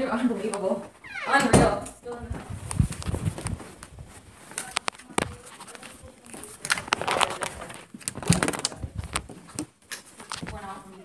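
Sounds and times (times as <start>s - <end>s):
clicks knocks and rustling: 6.4s - 10.7s.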